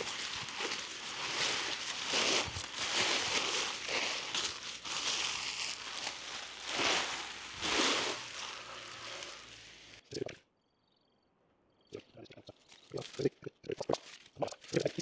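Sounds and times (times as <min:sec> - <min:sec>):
tent fabric crinkling: 0:00.0 - 0:10.0.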